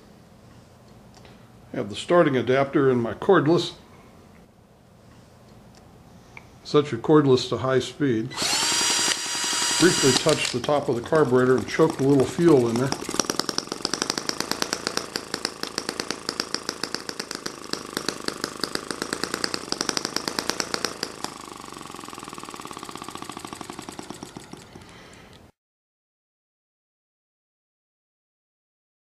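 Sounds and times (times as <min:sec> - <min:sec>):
small engine popping: 0:08.3 - 0:25.5.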